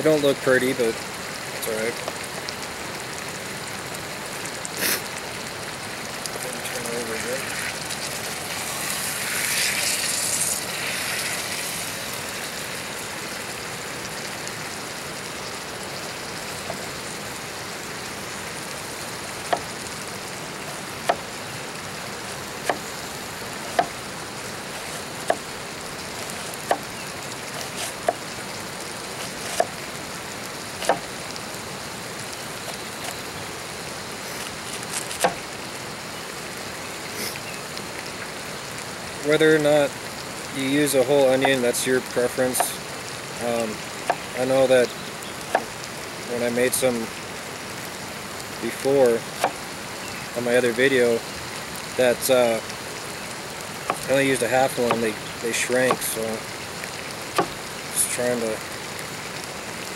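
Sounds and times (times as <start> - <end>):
steak sizzling in a skillet: 0.0 - 59.9.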